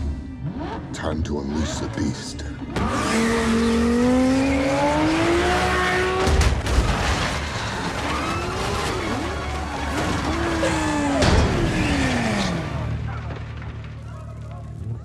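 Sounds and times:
sports car engine revving: 0:00.0 - 0:06.4
crash of impacts and debris: 0:02.7 - 0:15.0.

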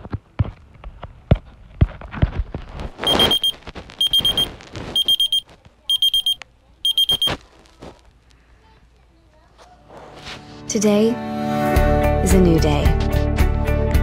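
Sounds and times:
rustling: 0:01.9 - 0:05.8
alarm clock beeping: 0:03.0 - 0:07.4.

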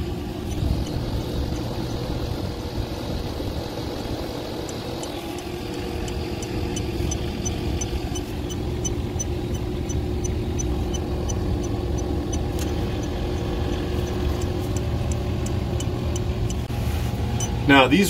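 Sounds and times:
condensing unit humming: 0:00.0 - 0:18.0
leak detector beeping: 0:17.4 - 0:17.6.

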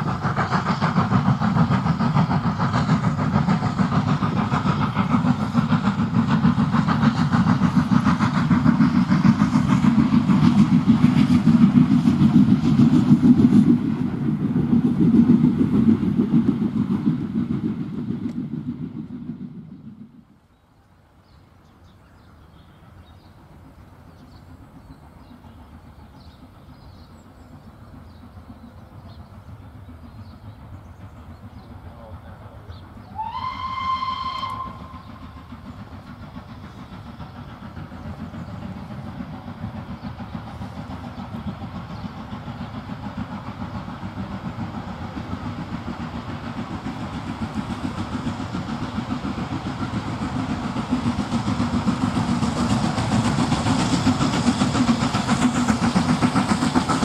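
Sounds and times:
steam train rumbling: 0:00.0 - 0:57.0
steam whistle blast: 0:33.1 - 0:35.2.

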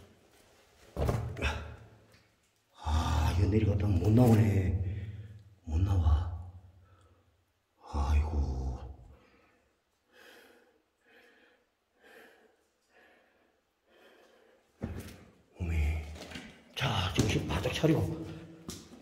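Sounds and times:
man breathing hard: 0:09.1 - 0:14.8.

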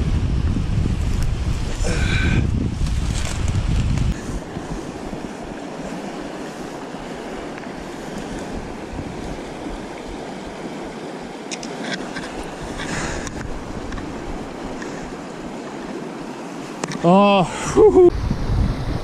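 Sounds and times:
wind buffeting microphone: 0:00.0 - 0:16.7, 0:17.5 - 0:19.0
river water rushing: 0:04.2 - 0:19.0.

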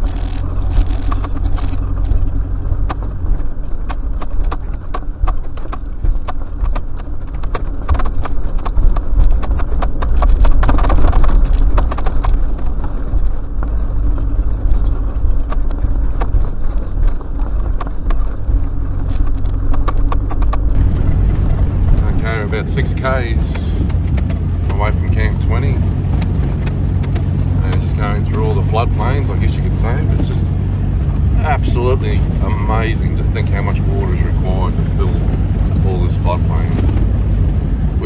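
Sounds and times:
knocks and rattles: 0:00.0 - 0:37.9
vehicle engine and road drone: 0:00.0 - 0:38.0.

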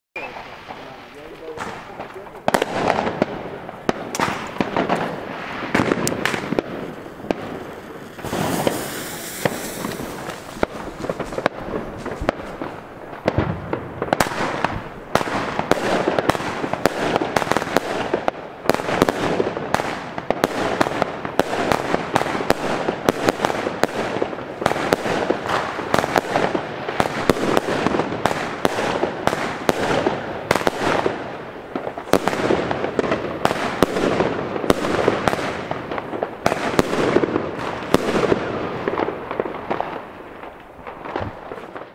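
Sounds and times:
firework crackling bursts: 0:00.2 - 0:41.9
firework launch bangs: 0:00.3 - 0:41.9.

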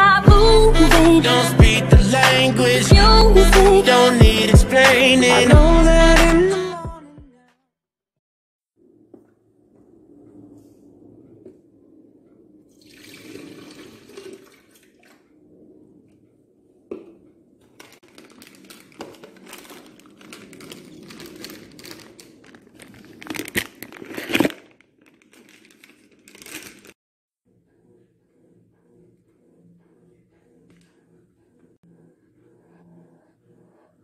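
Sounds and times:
foil sachet crinkling and tearing: 0:17.8 - 0:27.0.

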